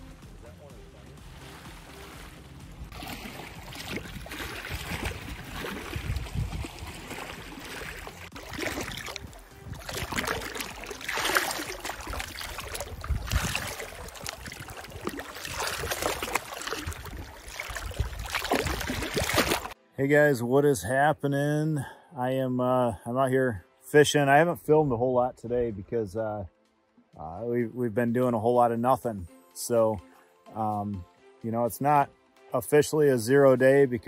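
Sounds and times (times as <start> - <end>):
lake waves splashing against rock: 1.0 - 19.8.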